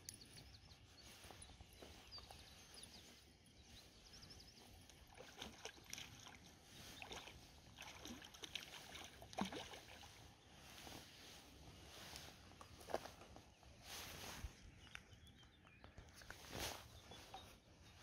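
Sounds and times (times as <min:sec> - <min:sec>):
faint high bird chirps: 0:00.0 - 0:07.4, 0:13.4 - 0:18.0
water sloshing and lapping: 0:01.0 - 0:13.4.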